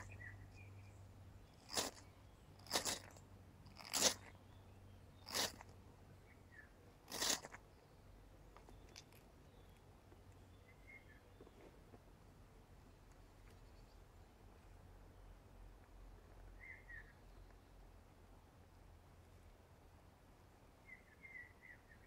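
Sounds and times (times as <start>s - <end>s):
ferro rod scraping: 1.6s - 4.3s, 5.2s - 5.7s, 7.1s - 7.6s.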